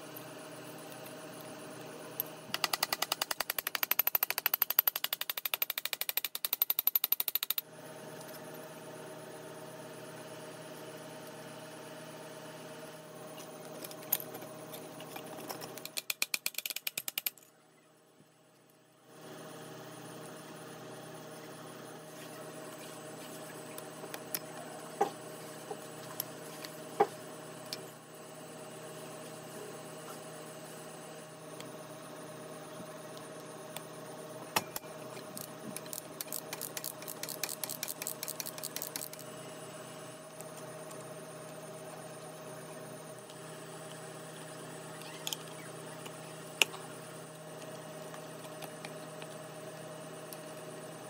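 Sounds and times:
metallic clicks and knocks: 0:02.5 - 0:07.6
steady hum: 0:07.6 - 0:51.0.

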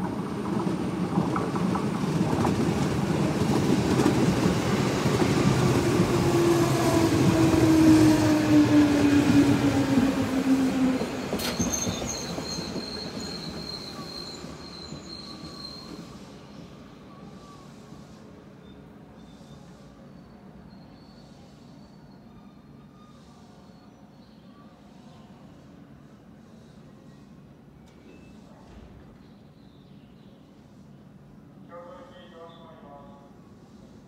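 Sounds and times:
electric train passing: 0:00.0 - 0:15.7
train wheel squeal: 0:05.4 - 0:25.6, 0:28.0 - 0:28.6.

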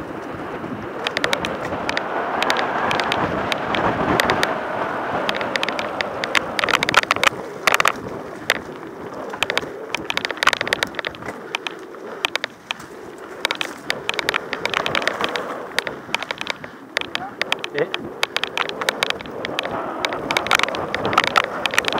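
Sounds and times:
bike clicks and rattles: 0:00.0 - 0:21.9
tyre and wind rush: 0:00.0 - 0:21.9.

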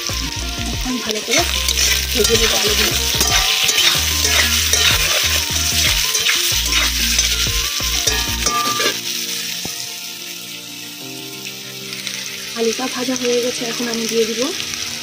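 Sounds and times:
potatoes sizzling in hot oil: 0:00.0 - 0:15.0
metal spatula scraping pan: 0:01.4 - 0:09.0.

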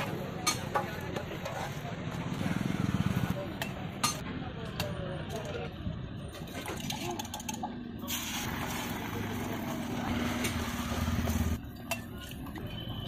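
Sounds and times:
motor vehicle engine hum: 0:08.5 - 0:12.8.

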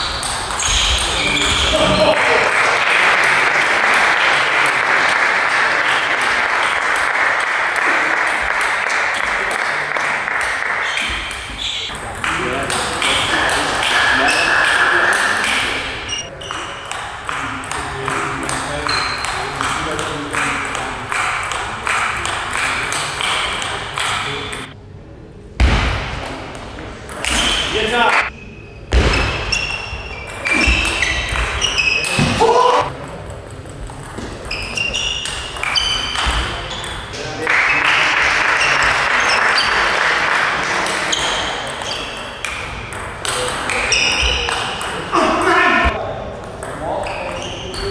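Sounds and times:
spectators clapping: 0:01.8 - 0:11.2, 0:37.4 - 0:41.2.

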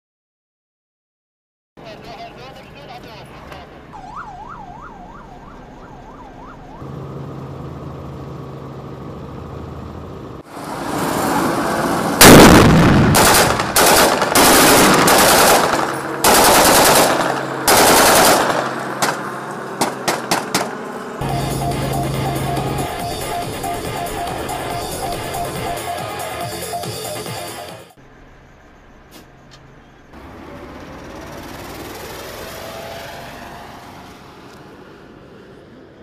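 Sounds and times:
siren yelping: 0:03.9 - 0:06.9, 0:21.2 - 0:27.9
automatic gunfire bursts: 0:12.2 - 0:19.2, 0:19.8 - 0:20.7
low hum: 0:20.9 - 0:25.8.

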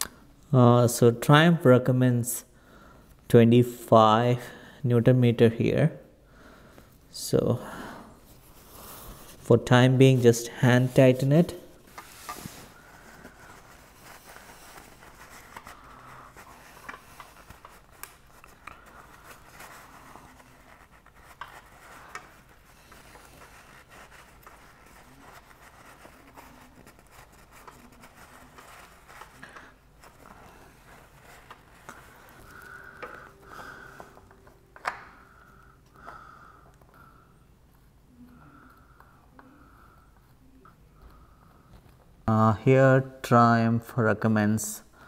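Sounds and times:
cloth rag rubbing on metal: 0:08.2 - 0:32.8.

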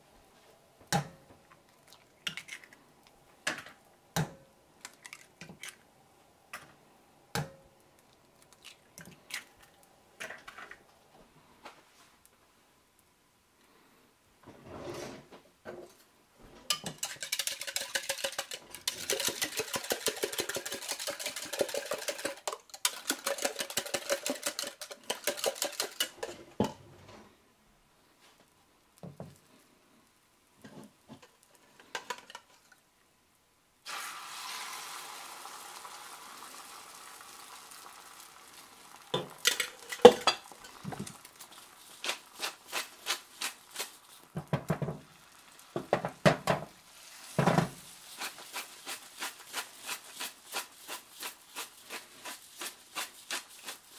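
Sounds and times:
egg sizzling in skillet: 0:16.7 - 0:26.4, 0:33.8 - 0:53.9
utensil clicking against pan: 0:16.7 - 0:26.4
eggs beaten in plastic cup: 0:16.7 - 0:26.7, 0:39.2 - 0:45.1, 0:47.4 - 0:53.9.

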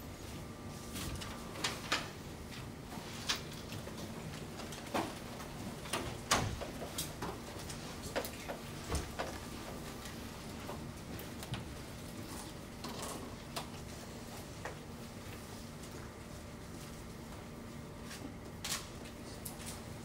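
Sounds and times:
steady room hum: 0:00.0 - 0:20.0.

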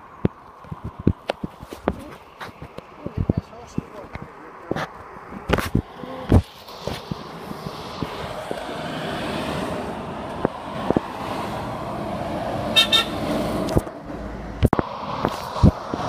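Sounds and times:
lorry engine and tyre noise: 0:00.0 - 0:16.0
high-pitched toot: 0:12.8 - 0:13.2.

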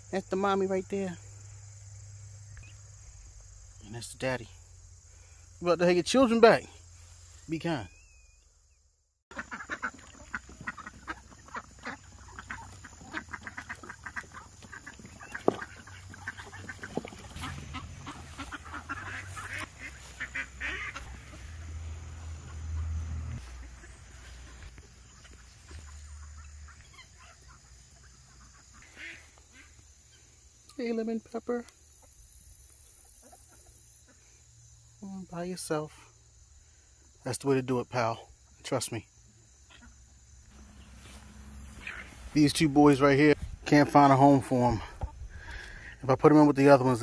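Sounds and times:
poultry calling: 0:09.3 - 0:30.3, 0:39.6 - 0:44.0, 0:44.6 - 0:46.0.

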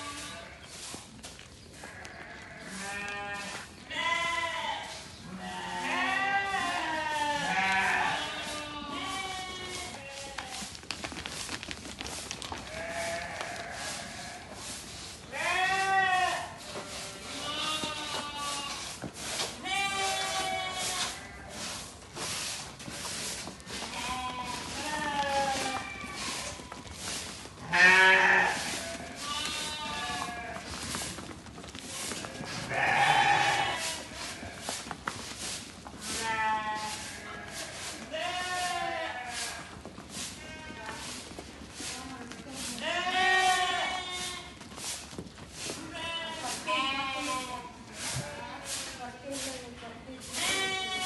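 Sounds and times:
sheep bleating: 0:01.8 - 0:10.5, 0:12.7 - 0:14.4, 0:15.3 - 0:18.8, 0:19.6 - 0:21.5, 0:23.9 - 0:26.3, 0:27.6 - 0:30.7, 0:32.2 - 0:34.6, 0:36.1 - 0:39.7, 0:42.8 - 0:44.6, 0:45.9 - 0:48.7, 0:50.3 - 0:51.0.

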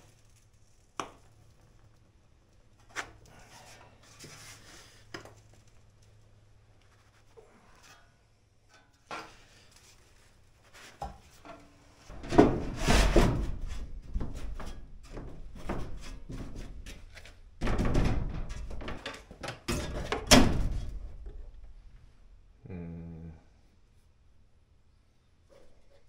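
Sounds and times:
sheet metal rattling: 0:12.1 - 0:21.6.

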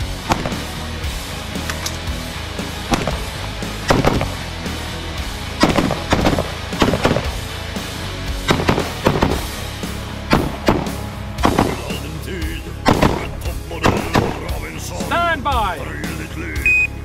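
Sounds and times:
background music: 0:00.0 - 0:17.0
rifle shots: 0:00.2 - 0:00.8, 0:01.6 - 0:04.6, 0:05.5 - 0:07.5, 0:08.4 - 0:12.0, 0:12.8 - 0:14.5.

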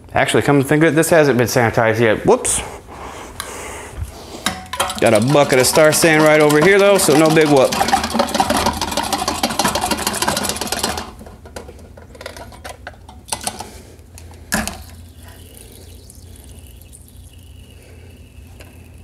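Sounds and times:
equipment clinking and knocking: 0:04.4 - 0:13.7
tools sloshing in a bucket: 0:04.5 - 0:11.2.

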